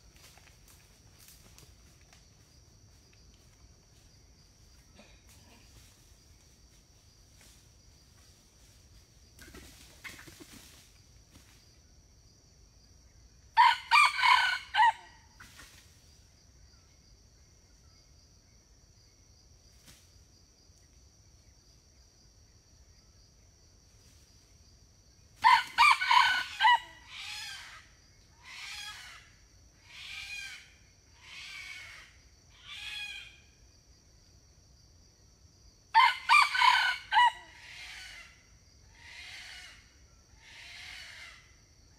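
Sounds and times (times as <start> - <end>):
high insect drone: 0.0 - 41.9
quieter rooster calls: 13.6 - 15.2, 25.4 - 27.6, 36.0 - 38.2
rooster crowing: 13.6 - 15.2, 25.4 - 27.6, 35.9 - 38.2.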